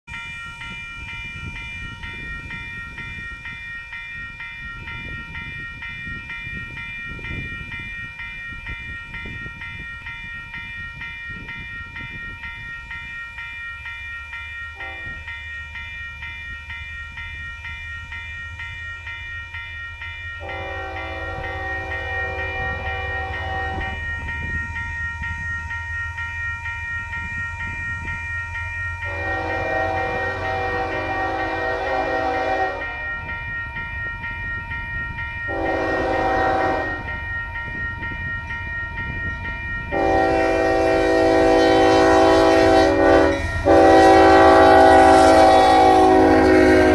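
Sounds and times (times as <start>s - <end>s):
low locomotive engine drone: 0.1s - 46.9s
train air horn blasts: 14.8s - 15.2s, 20.4s - 24.0s, 29.0s - 33.0s, 35.5s - 37.2s, 39.9s - 46.9s.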